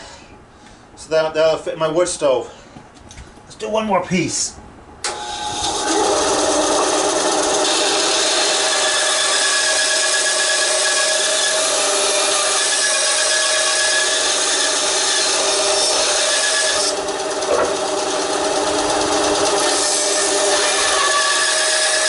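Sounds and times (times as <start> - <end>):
band saw motor running: 5.1 - 22.0
saw blade rasping through log: 5.4 - 22.0.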